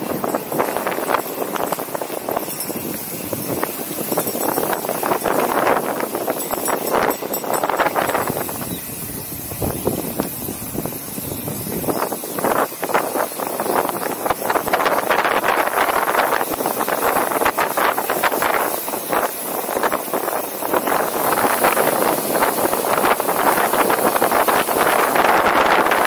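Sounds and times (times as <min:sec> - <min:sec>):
bike tyre noise on dirt: 0:00.0 - 0:26.0
wind rushing over microphone: 0:00.0 - 0:26.0.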